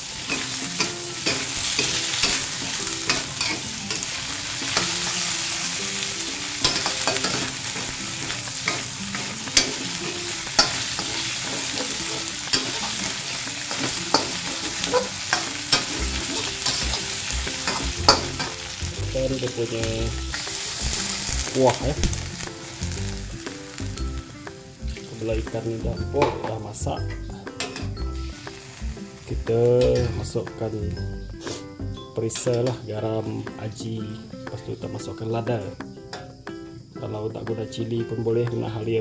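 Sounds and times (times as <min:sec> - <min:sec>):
metal spatula scraping wok: 0:00.0 - 0:18.8, 0:20.3 - 0:21.6
fish sizzling in a wok: 0:00.0 - 0:26.8, 0:27.4 - 0:30.4, 0:31.3 - 0:32.0.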